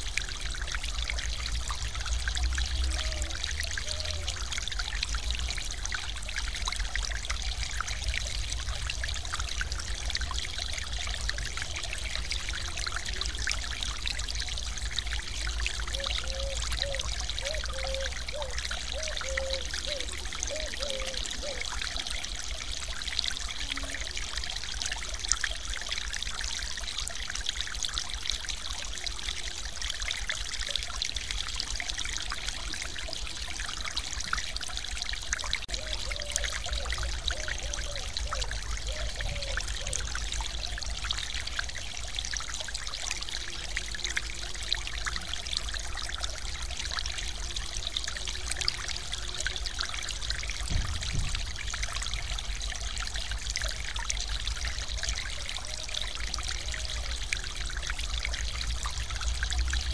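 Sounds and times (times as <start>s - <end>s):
water pouring over weir: 0.0s - 59.9s.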